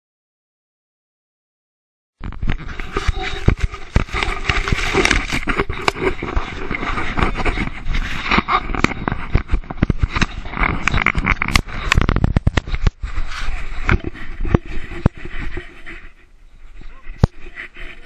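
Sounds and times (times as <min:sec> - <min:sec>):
knocks and scrapes on camera case: 0:02.2 - 0:15.8
grass brushing: 0:02.5 - 0:16.1.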